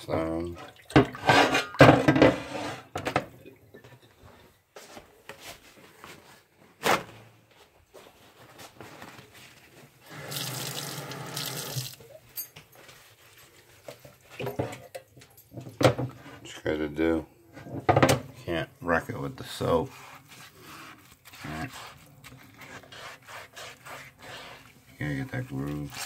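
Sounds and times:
kitchen tap running: 10.1 - 12.0.

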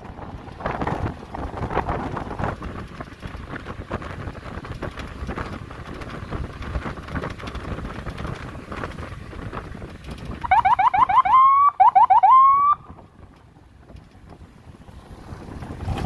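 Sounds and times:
vehicle rumble: 0.0 - 16.0
wind on microphone: 0.0 - 16.0
electronic siren horn chirps: 10.4 - 12.8.

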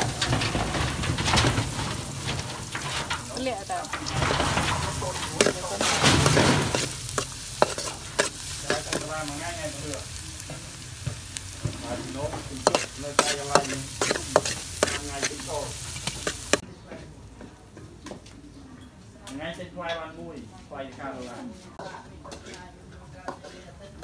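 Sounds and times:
garlic sizzling in oil: 0.0 - 0.8, 1.6 - 16.6
metal spatula scraping wok: 0.0 - 16.6, 21.8 - 22.5, 23.2 - 24.0.

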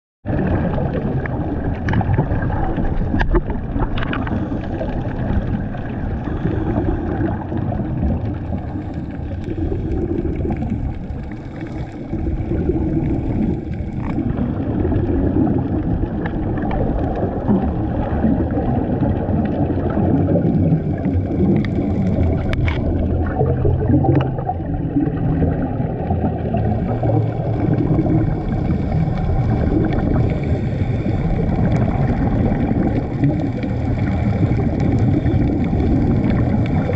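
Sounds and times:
divers' bubbles gurgling: 0.2 - 36.9
muffled underwater rumble: 0.2 - 36.9
faint clicks: 21.6 - 23.0.

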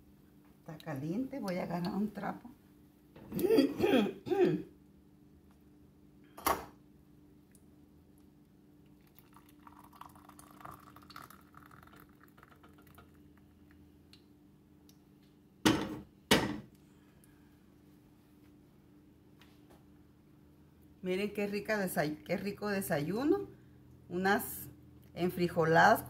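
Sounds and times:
coffee pouring into mug: 8.8 - 13.8.

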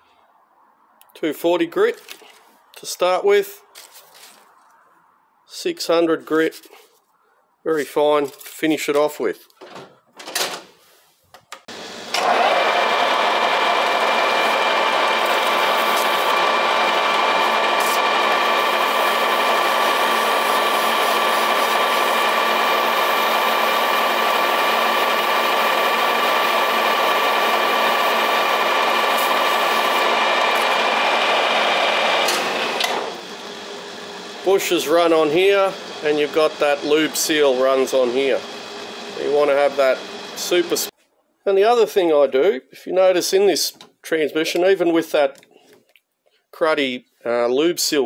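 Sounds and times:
metal lathe whining: 11.7 - 40.9.

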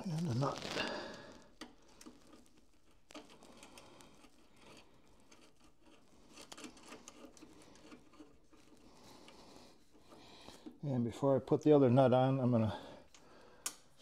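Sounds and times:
fingers handling wire terminals: 0.0 - 10.8.

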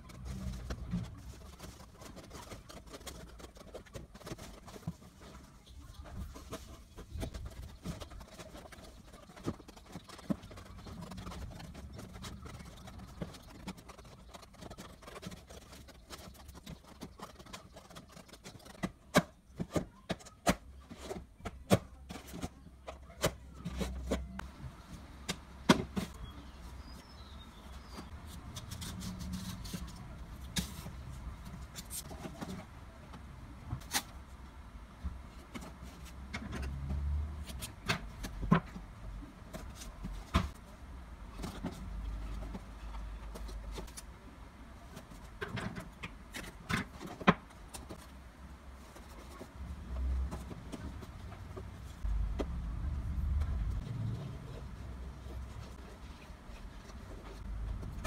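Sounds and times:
cardboard cartons tapping and knocking: 0.0 - 28.2
low rumble: 52.0 - 55.2.

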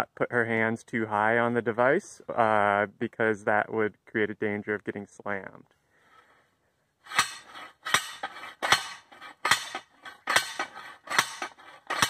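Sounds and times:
post driver clanging on steel pipe: 7.1 - 12.0.

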